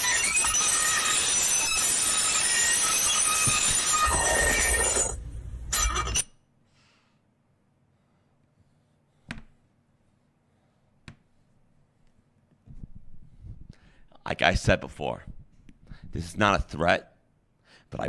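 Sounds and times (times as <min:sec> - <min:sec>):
fork scratching metal plate: 0:00.0 - 0:06.2.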